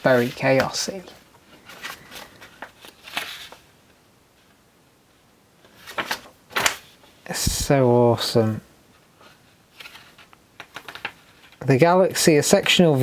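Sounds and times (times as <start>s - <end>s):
book pages rustling: 0.0s - 4.6s, 5.6s - 7.2s, 8.9s - 11.7s.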